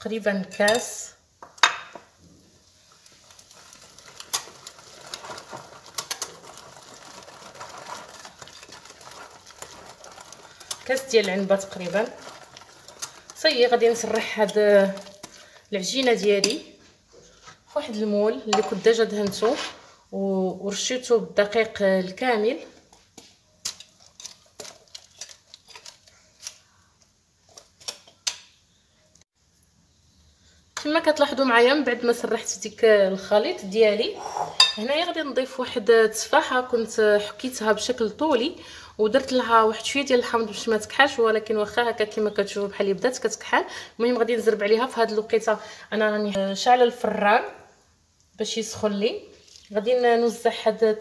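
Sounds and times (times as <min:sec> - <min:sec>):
whisk stirring batter: 0:03.4 - 0:16.2.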